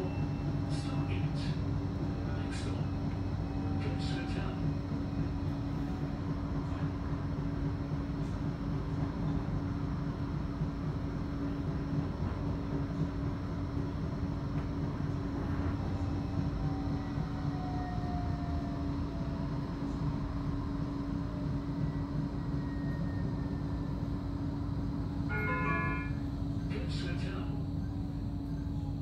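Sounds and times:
tram cabin rumble: 0:00.0 - 0:29.0
announcement chime: 0:25.3 - 0:28.0.

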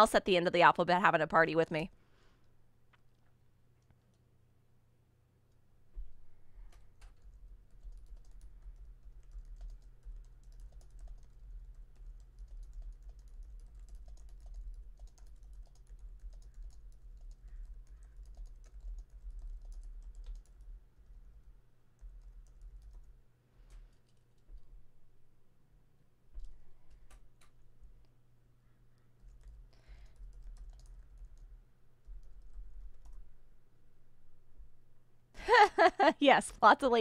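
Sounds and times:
keyboard typing: 0:06.7 - 0:24.8, 0:26.4 - 0:28.1, 0:29.2 - 0:33.4.

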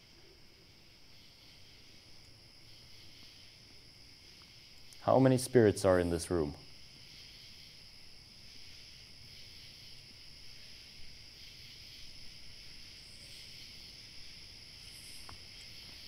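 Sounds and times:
crickets trilling: 0:00.0 - 0:16.0.

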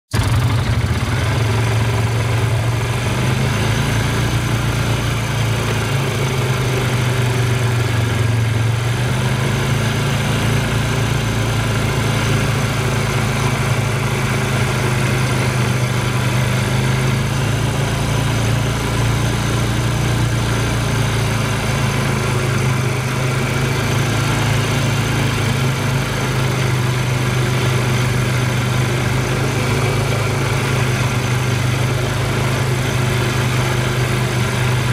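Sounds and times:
quad engine running: 0:00.1 - 0:34.9.

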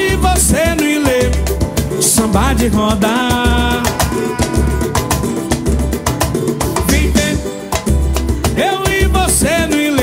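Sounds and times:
person singing: 0:00.0 - 0:05.8
samba band playing: 0:00.0 - 0:10.0
heavy bass beat: 0:02.3 - 0:07.4.

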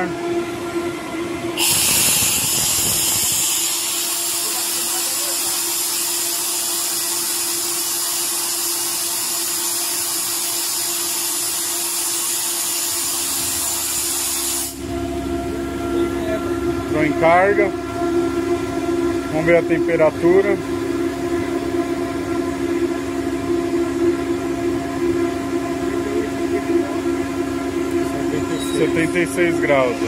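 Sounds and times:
compressor humming: 0:00.0 - 0:30.0
compressed air hissing: 0:01.6 - 0:08.4, 0:09.8 - 0:14.8.

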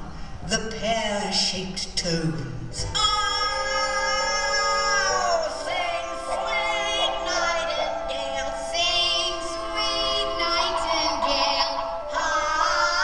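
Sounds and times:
layered vocal lines: 0:02.8 - 0:13.0
woman singing show tune: 0:02.8 - 0:13.0.

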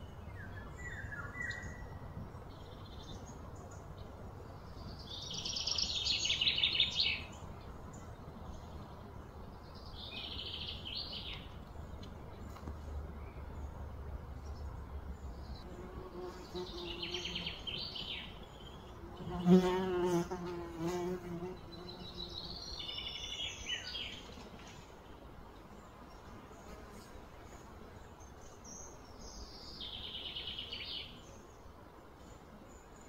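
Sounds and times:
flying insect buzzing: 0:19.0 - 0:22.4.

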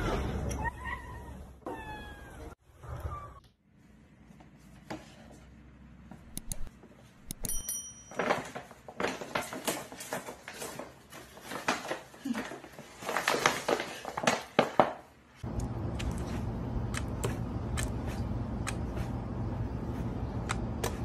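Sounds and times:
paper bag rustling: 0:08.2 - 0:15.0.

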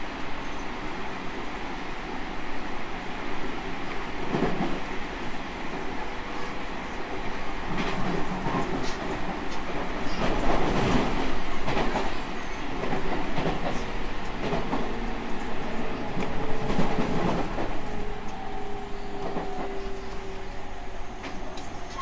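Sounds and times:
electric train rolling: 0:03.6 - 0:22.0.

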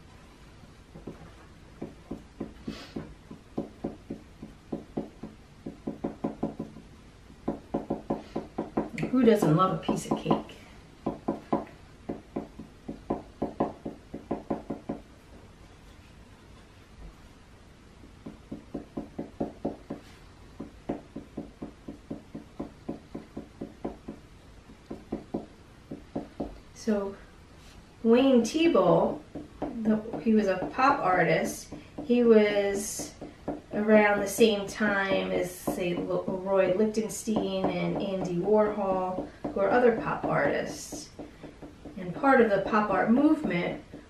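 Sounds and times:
marker tapping on paper: 0:00.9 - 0:10.4, 0:11.0 - 0:15.0, 0:18.2 - 0:26.6, 0:29.2 - 0:32.2, 0:32.8 - 0:34.6, 0:37.0 - 0:44.0.

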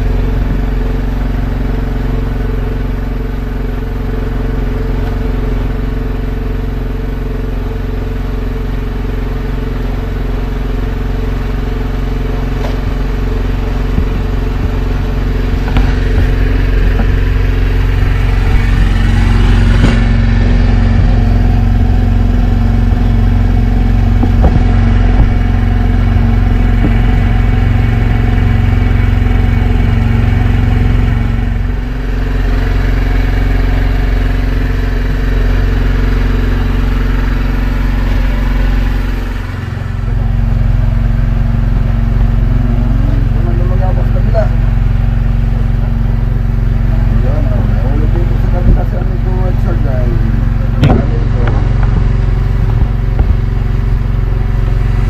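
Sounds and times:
boat engine running: 0:00.0 - 0:55.0
knocks and clatters on deck: 0:50.8 - 0:53.4.

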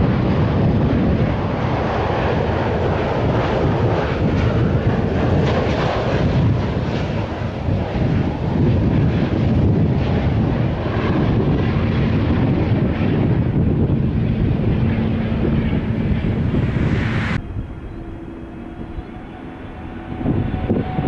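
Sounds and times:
jet engine rumble: 0:00.0 - 0:21.0
jet engine whine: 0:00.0 - 0:21.0.

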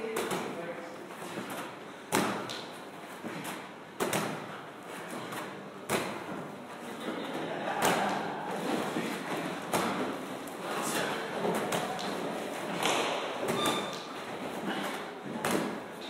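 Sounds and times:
gym noise: 0:00.0 - 0:16.0
medicine ball thudding against wall: 0:01.4 - 0:02.7, 0:03.3 - 0:04.6.

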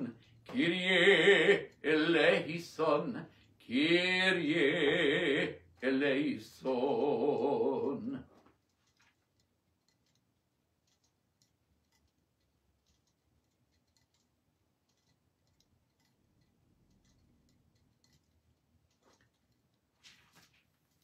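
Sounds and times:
faint small clicks: 0:07.8 - 0:21.0.

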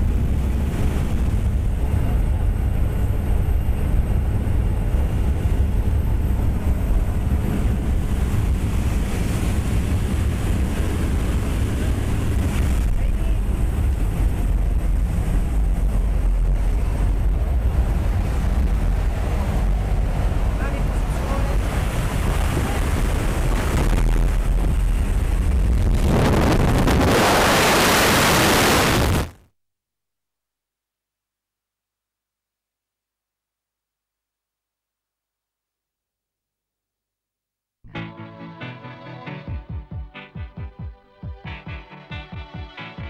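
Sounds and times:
wind buffeting the microphone: 0:00.0 - 0:27.7
aircraft engine noise: 0:00.0 - 0:29.3.

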